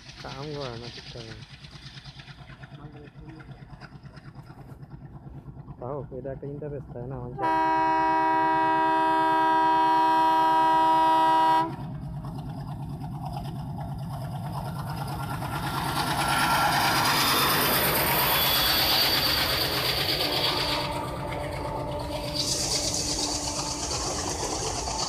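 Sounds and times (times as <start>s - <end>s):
diesel locomotive engine: 0.0s - 25.0s
train wheels on bridge: 0.0s - 25.0s
locomotive horn: 7.4s - 11.8s, 20.2s - 22.8s.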